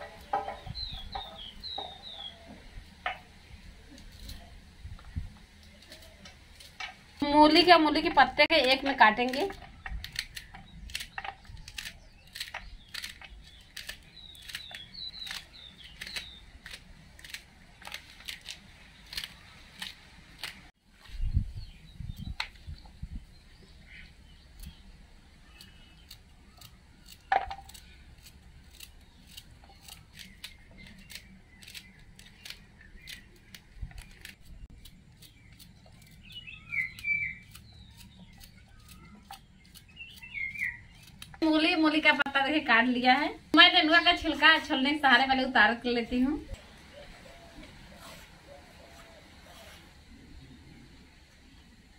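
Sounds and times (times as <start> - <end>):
birds chirping: 0.0 - 51.9
knife cutting radish stalks: 5.6 - 6.8, 7.4 - 20.7, 25.4 - 42.2.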